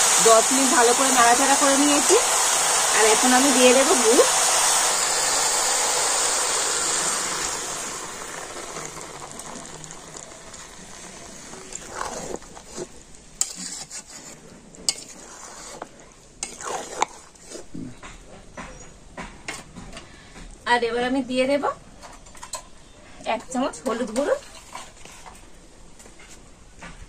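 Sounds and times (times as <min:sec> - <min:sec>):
food sizzling in oil: 0:00.0 - 0:14.3.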